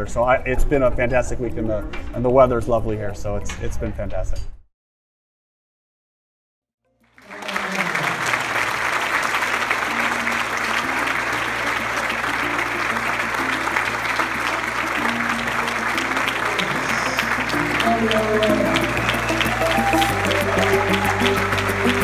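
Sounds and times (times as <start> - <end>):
large crowd applauding: 7.0 - 22.0
music playing: 7.3 - 22.0.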